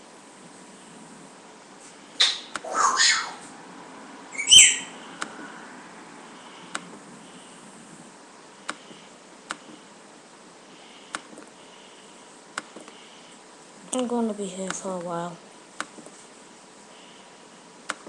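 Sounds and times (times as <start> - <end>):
low hiss: 0.0 - 18.0
loud squeak-like chirp: 4.3 - 5.0.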